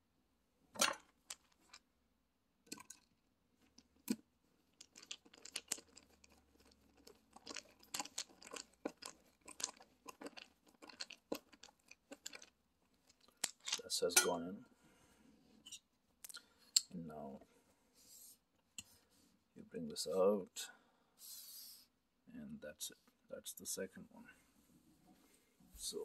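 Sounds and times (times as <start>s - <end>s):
screw crunching and scraping: 3.7s - 14.4s.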